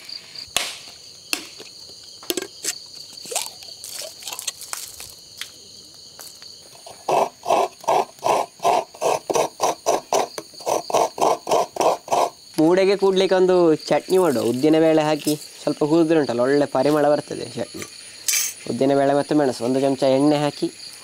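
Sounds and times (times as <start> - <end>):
insects trilling: 0.0 - 21.0
coconut grater rasping: 6.9 - 12.4.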